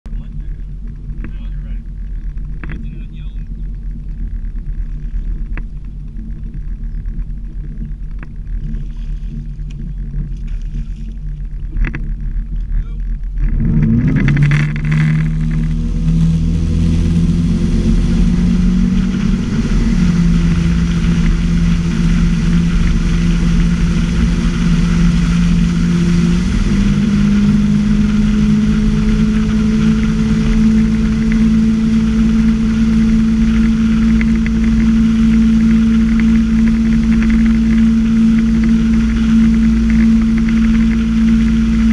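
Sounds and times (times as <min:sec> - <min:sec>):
motorboat engine: 0:00.0 - 0:41.9
rushing water and spray: 0:13.8 - 0:41.9.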